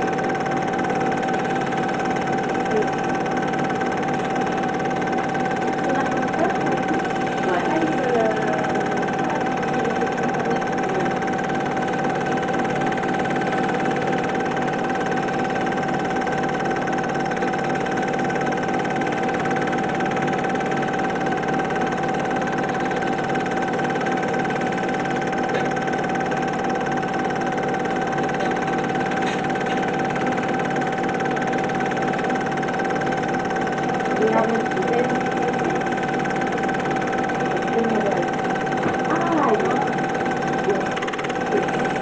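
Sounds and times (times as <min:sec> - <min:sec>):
film projector whirring: 0:00.0 - 0:42.0.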